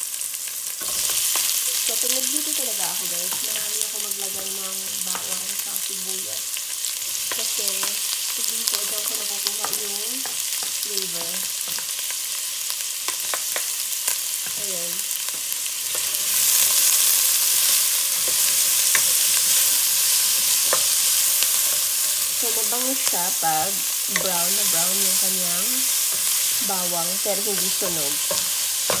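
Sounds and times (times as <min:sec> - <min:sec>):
onion and garlic sizzling in oil: 0:00.0 - 0:29.0
wooden spoon stirring: 0:17.6 - 0:29.0.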